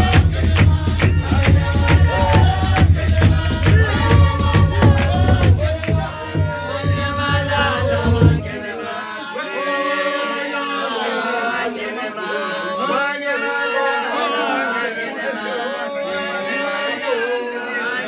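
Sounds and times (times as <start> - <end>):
low thudding beat: 0.0 - 8.6
group of voices chanting: 0.0 - 18.0.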